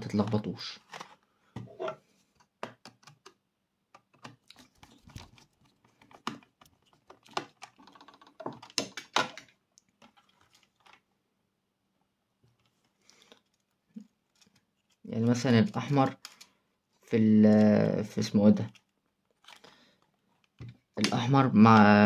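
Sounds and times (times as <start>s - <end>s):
small clicks and taps on plastic: 2.4s - 10.2s.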